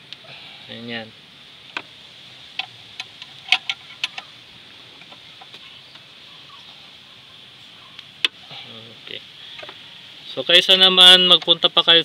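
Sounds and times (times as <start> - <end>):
faint high hiss: 0.0 - 12.0
wrench clicking: 2.6 - 4.3.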